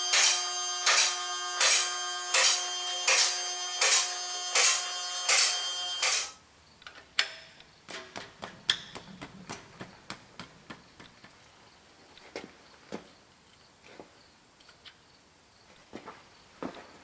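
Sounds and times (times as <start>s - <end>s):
vehicle lift motor humming: 0.0s - 6.4s.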